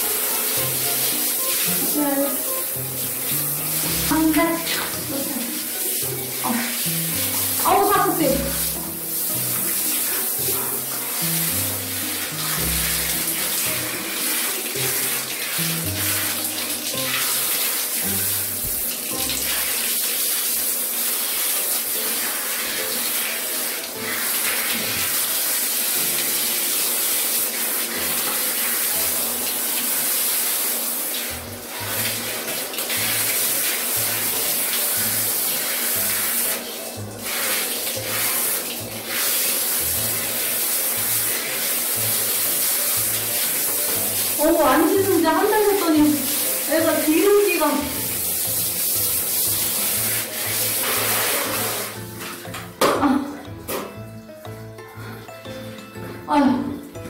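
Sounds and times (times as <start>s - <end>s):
comic background music: 0.0s - 20.0s, 31.4s - 57.0s
shower water spraying: 0.0s - 57.0s.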